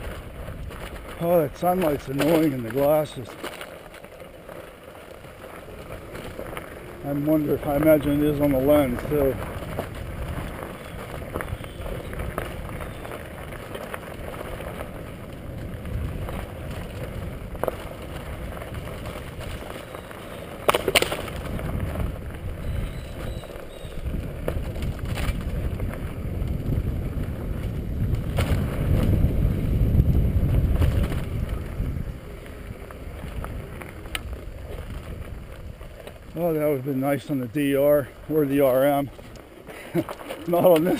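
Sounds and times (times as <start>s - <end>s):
bicycle tyres on gravel: 0.0s - 40.9s
bike rattling and knocking: 0.0s - 40.9s
wind buffeting microphone: 0.0s - 40.9s.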